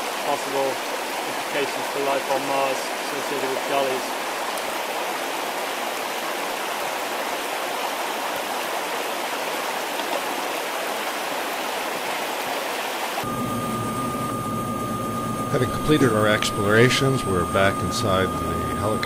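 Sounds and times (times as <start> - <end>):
stream running water: 0.0 - 13.2
helicopter cabin hum and whine: 13.2 - 19.0.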